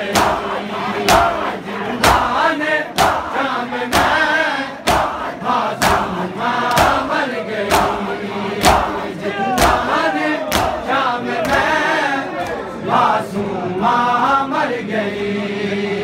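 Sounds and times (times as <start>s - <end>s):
men chanting a lament: 0.0s - 16.0s
hands slapping bare chests: 4.8s - 5.2s, 5.8s - 7.1s, 7.7s - 8.0s, 9.6s - 10.8s.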